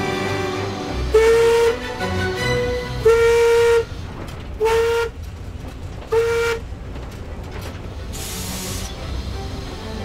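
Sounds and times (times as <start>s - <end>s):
steam locomotive whistle blasts: 0.0s - 3.9s
low rumble of train: 0.0s - 10.0s.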